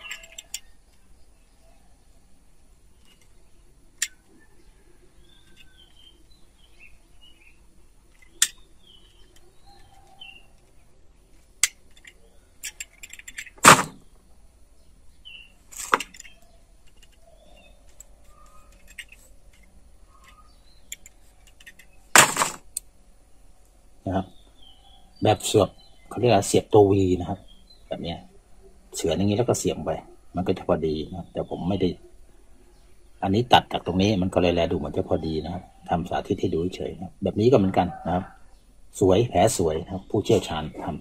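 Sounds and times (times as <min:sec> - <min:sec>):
knife clicking and scraping wood: 0:00.0 - 0:00.7, 0:04.0 - 0:04.2, 0:15.7 - 0:22.6
birds chirping faintly: 0:00.0 - 0:41.0.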